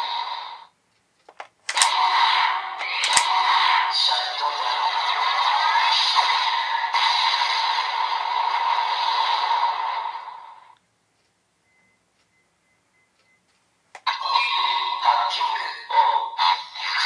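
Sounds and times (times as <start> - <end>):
toy button click: 2.8 - 3.3.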